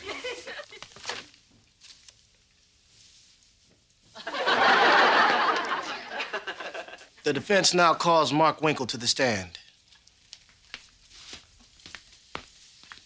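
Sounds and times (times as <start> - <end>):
audience laughing: 0.0 - 0.8, 4.2 - 7.2.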